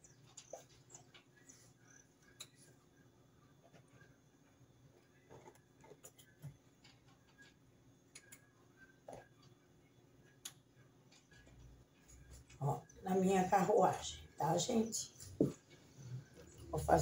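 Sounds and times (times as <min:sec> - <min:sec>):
faint clicks and taps: 0:03.6 - 0:09.6, 0:10.2 - 0:12.6.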